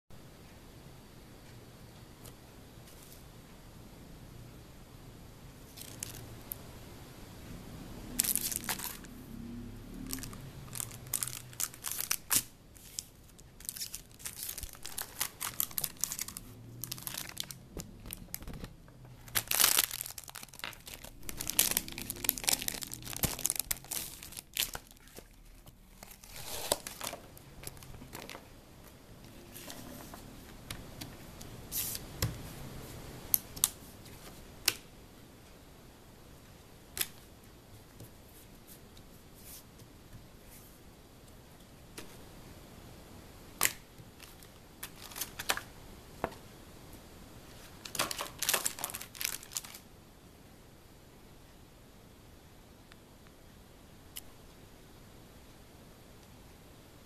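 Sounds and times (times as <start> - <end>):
plastic film crinkling: 8.2 - 9.1, 10.0 - 28.5, 43.6 - 45.7, 47.6 - 49.8.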